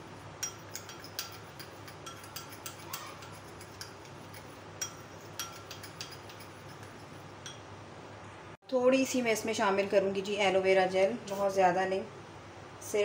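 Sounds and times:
metal spoon clinking on glass bowl: 0:00.4 - 0:07.7.

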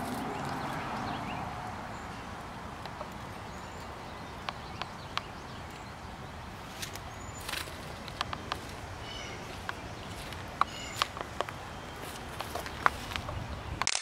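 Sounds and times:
rustling through mulch and plants: 0:00.0 - 0:14.0
shoes scuffing on stone: 0:09.4 - 0:13.3.

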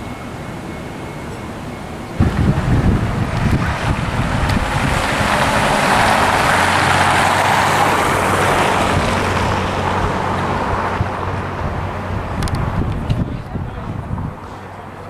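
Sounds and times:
low engine hum: 0:00.0 - 0:15.0
car driving past: 0:02.2 - 0:12.8.

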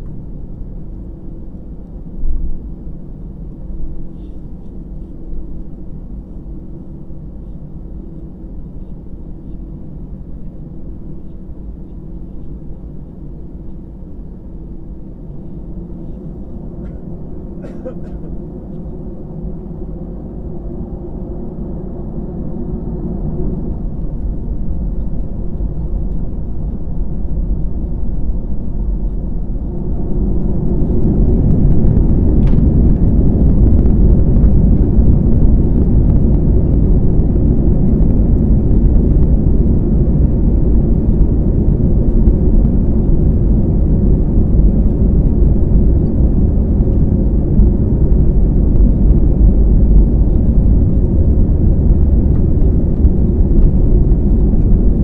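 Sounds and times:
loud steady engine rumble: 0:00.0 - 0:55.0
jet engines spooling up: 0:15.1 - 0:55.0.

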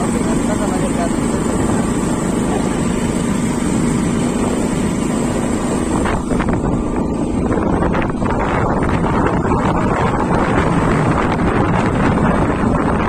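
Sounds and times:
motorcycle engine running: 0:00.0 - 0:13.0
wind on microphone: 0:00.0 - 0:13.0.

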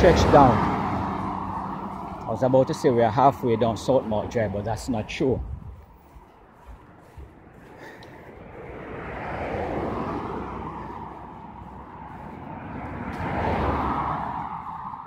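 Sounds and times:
cars driving past: 0:00.0 - 0:15.0.

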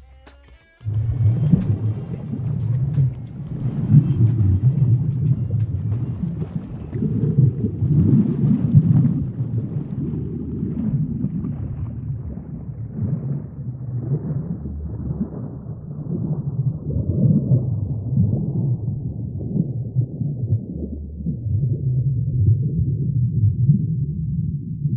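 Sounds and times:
low churning underwater rumble: 0:00.9 - 0:24.9.

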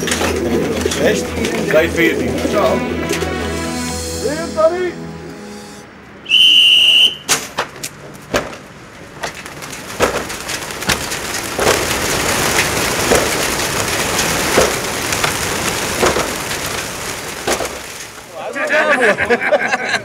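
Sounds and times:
pigeon wingbeats clattering: 0:00.0 - 0:02.5, 0:08.1 - 0:18.8
short high tone: 0:01.0 - 0:06.1
hatches and crates knocking: 0:07.3 - 0:16.8.

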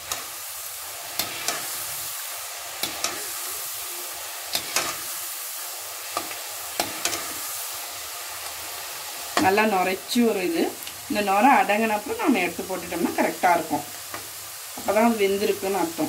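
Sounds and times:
beans deep-frying in oil: 0:00.0 - 0:16.0.

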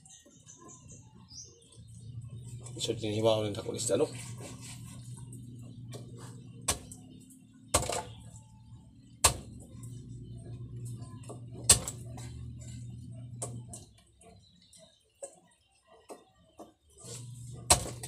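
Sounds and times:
steady low hum: 0:00.9 - 0:15.0
knife chopping on wooden block: 0:09.2 - 0:09.5, 0:17.7 - 0:18.0.

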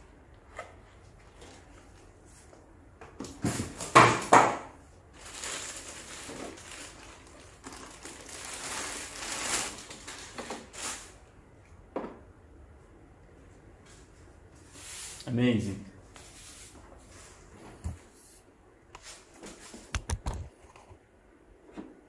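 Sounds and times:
plastic bag crinkling: 0:05.1 - 0:11.2.

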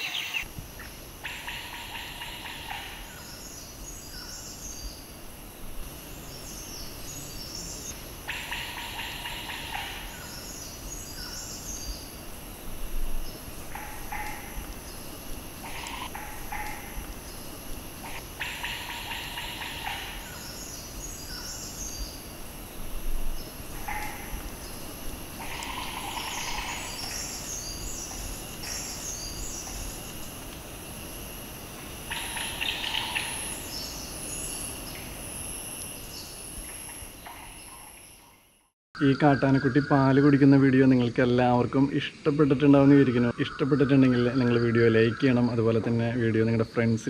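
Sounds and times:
birds calling: 0:00.0 - 0:00.5, 0:05.6 - 0:30.3, 0:32.1 - 0:35.0, 0:39.0 - 0:47.0
high bird chirping: 0:00.0 - 0:00.5
pulsing rattling bird call: 0:00.0 - 0:00.5, 0:01.2 - 0:04.8, 0:06.2 - 0:30.4, 0:32.0 - 0:38.4
high insect drone: 0:00.0 - 0:47.0.

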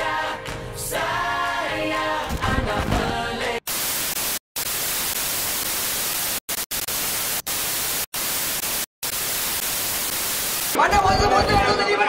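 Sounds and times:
television static hiss: 0:03.7 - 0:10.8.

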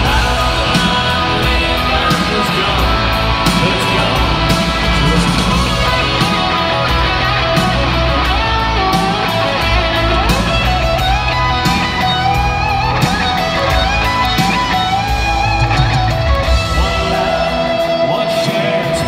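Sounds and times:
bass guitar: 0:00.0 - 0:19.0
drums: 0:00.0 - 0:19.0
electric guitar lead: 0:00.0 - 0:19.0.

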